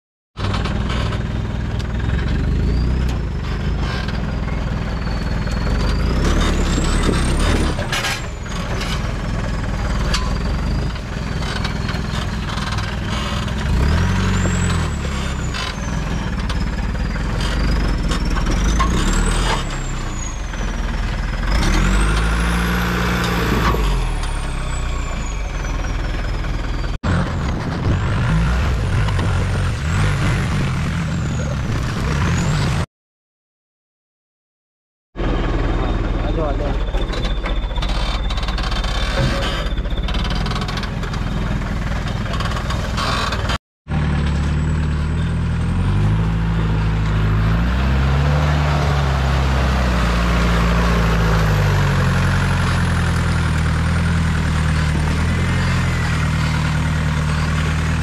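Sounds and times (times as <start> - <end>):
jeep engine revving: 5.0 - 25.4, 27.1 - 32.9, 42.3 - 58.0.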